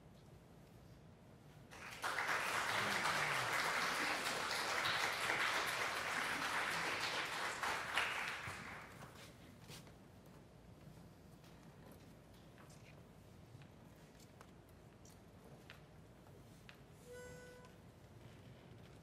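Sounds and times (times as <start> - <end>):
audience applauding: 1.7 - 9.2.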